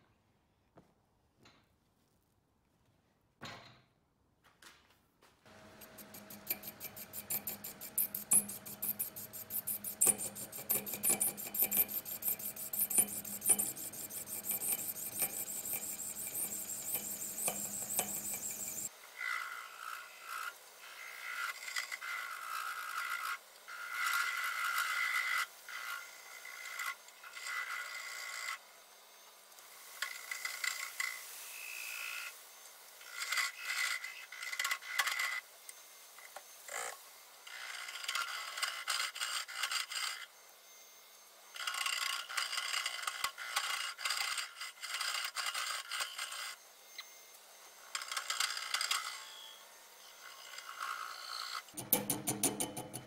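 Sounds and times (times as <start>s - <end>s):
wood lathe running: 5.5s - 18.9s
turning tool scraping resin: 5.6s - 18.9s, 51.4s - 53.0s.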